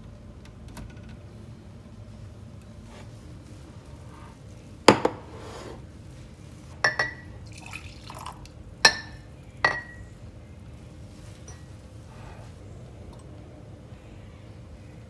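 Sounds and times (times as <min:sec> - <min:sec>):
ceramic cups clinking: 0:06.8 - 0:10.1, 0:11.4 - 0:11.7
coffee trickling into a mug: 0:07.0 - 0:08.6.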